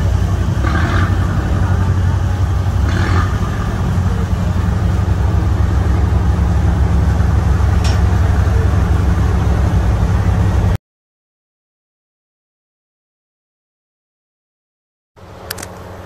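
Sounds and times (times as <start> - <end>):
diesel engine drone: 0.0 - 10.8, 15.2 - 16.0
rushing noise: 0.0 - 10.8.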